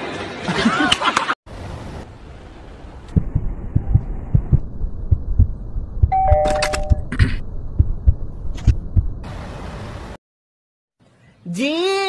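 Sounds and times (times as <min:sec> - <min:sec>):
low hum: 0:01.5 - 0:09.3
heartbeat thumps: 0:03.1 - 0:06.4, 0:07.0 - 0:09.2.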